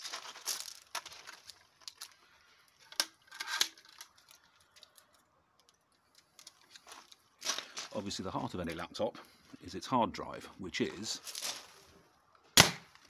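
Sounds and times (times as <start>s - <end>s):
small handling clicks and rustles: 0.0s - 8.9s.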